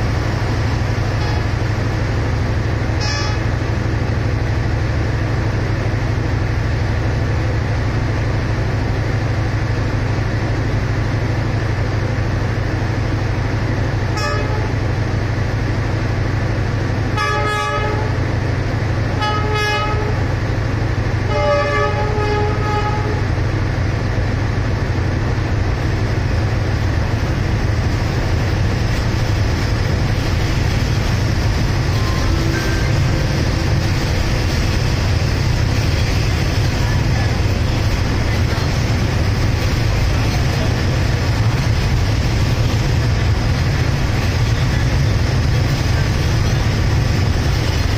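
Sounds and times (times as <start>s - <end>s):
diesel locomotive idling: 0.0s - 47.9s
train horn blasts: 1.2s - 1.5s, 3.0s - 3.6s, 14.1s - 14.8s, 17.1s - 18.2s, 19.2s - 20.3s, 21.2s - 23.3s.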